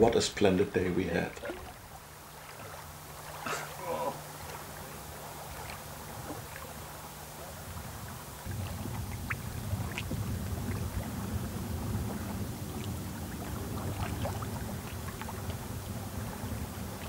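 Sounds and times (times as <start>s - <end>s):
water lapping: 0.0s - 17.0s
wind rumble: 7.7s - 17.0s.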